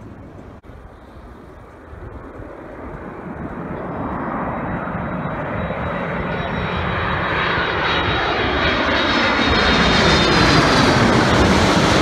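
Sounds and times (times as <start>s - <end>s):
jet airliner engine noise: 0.0s - 12.0s.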